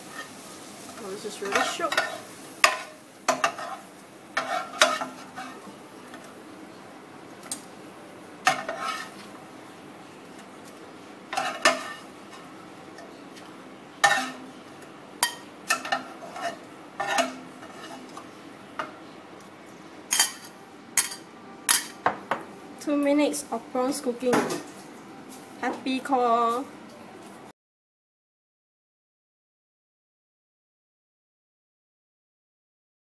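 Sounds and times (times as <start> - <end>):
faint sizzle: 0.0 - 27.5
spatula scraping and knocking pan: 1.0 - 6.3, 8.4 - 9.3, 11.3 - 12.5, 13.4 - 14.5, 15.2 - 18.2.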